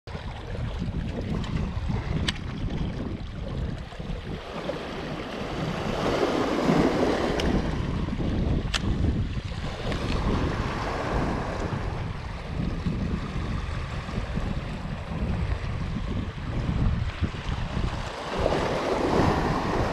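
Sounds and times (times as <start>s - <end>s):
wind rumbling on microphone: 0.1s - 19.9s
small waves breaking over rocks: 0.3s - 12.5s, 17.5s - 19.9s.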